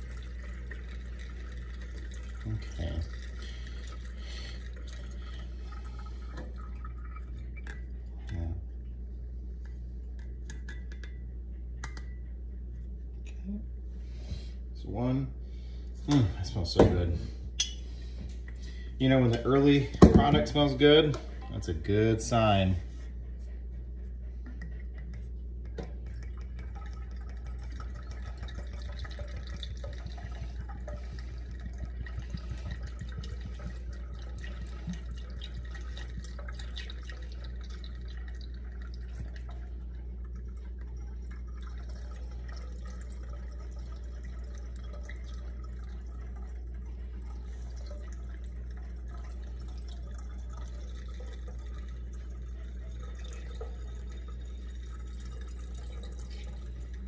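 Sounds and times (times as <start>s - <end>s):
drips: 0.0s - 8.5s, 15.8s - 22.6s, 24.4s - 57.0s
liquid pouring through funnel: 0.0s - 8.5s, 18.2s - 23.0s, 24.5s - 57.0s
low hum: 0.0s - 57.0s.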